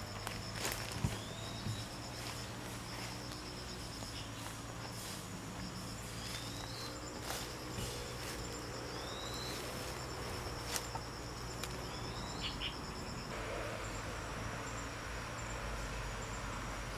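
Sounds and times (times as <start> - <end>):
insect trilling: 0.0 - 16.8.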